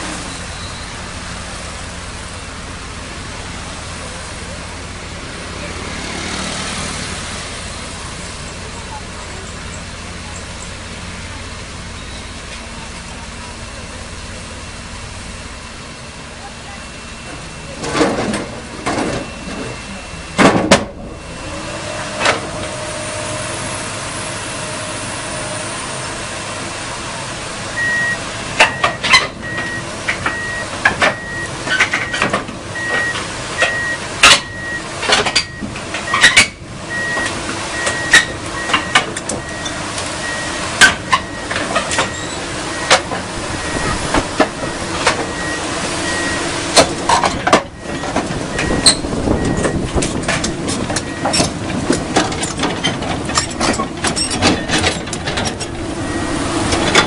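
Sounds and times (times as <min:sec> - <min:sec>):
excavator engine running: 0:00.0 - 0:57.0
travel alarm beeping: 0:16.3 - 0:20.4, 0:27.8 - 0:32.2, 0:32.8 - 0:46.6, 0:47.7 - 0:49.9, 0:51.0 - 0:51.5, 0:55.7 - 0:57.0
steel tracks clanking on metal: 0:16.7 - 0:26.2, 0:27.8 - 0:57.0.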